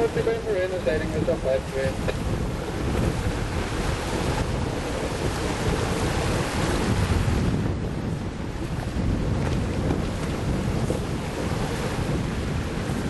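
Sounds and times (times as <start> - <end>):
sea water and waves rushing: 0.0 - 13.0
wind buffeting microphone: 0.0 - 13.0.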